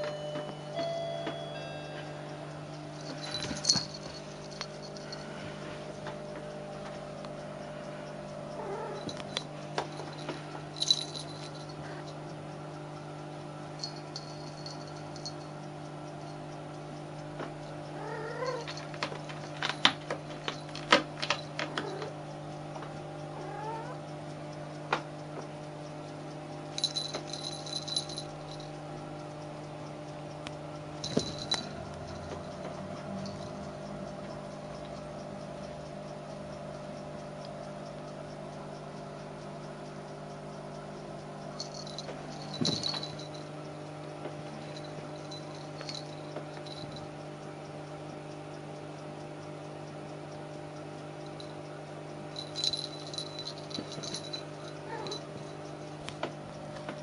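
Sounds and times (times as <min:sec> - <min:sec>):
steady background hum: 0:00.0 - 0:57.0
toy rattling and scuffling: 0:03.0 - 0:05.2, 0:31.0 - 0:32.4, 0:41.6 - 0:43.4, 0:52.4 - 0:55.3.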